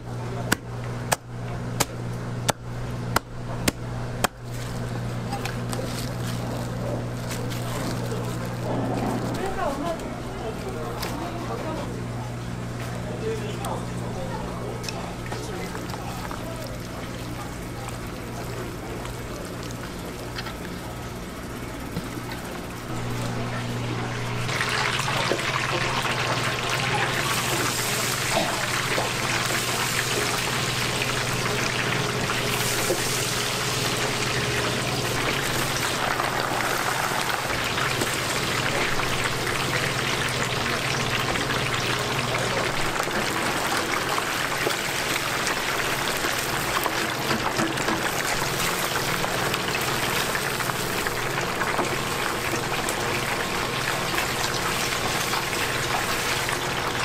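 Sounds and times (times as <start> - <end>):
steady low hum: 0.0 - 57.0
chicken deep-frying in oil: 12.5 - 57.0.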